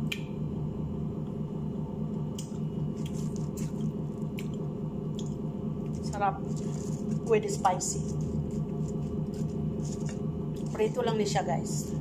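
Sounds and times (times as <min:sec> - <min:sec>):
low machine hum: 0:00.0 - 0:12.0
fried chicken crackling on paper: 0:05.9 - 0:10.8.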